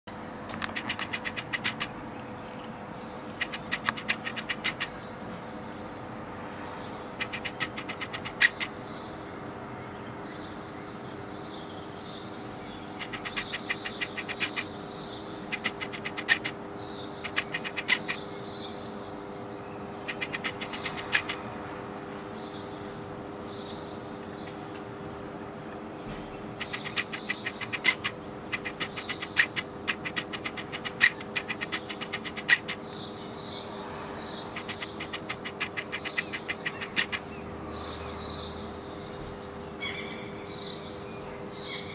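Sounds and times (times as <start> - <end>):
steady low hum: 0.1 - 41.9
magpie chattering: 0.6 - 2.0, 3.3 - 5.0, 7.2 - 8.8, 12.9 - 18.4, 20.0 - 21.4, 26.5 - 33.1, 34.4 - 37.5.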